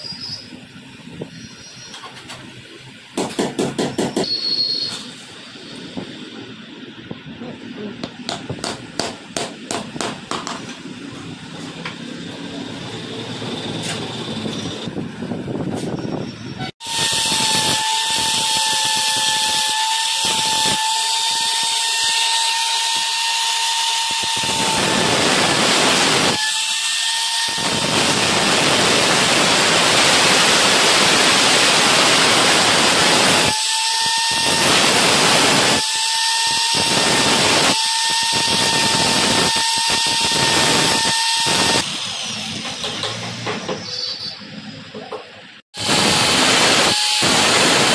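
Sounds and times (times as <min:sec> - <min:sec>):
angle grinder whine: 0:10.7 - 0:45.0, 0:45.8 - 0:47.9
grinder disc cutting metal: 0:16.8 - 0:44.8, 0:45.8 - 0:47.9.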